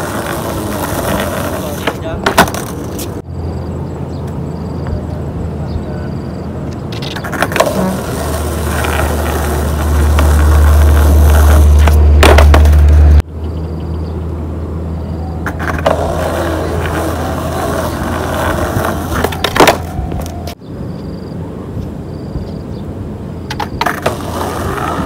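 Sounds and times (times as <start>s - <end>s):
skateboard clacking: 0.0s - 3.2s, 6.7s - 13.2s, 15.4s - 20.6s, 23.5s - 25.0s
skateboard wheels rolling on concrete: 0.0s - 25.0s.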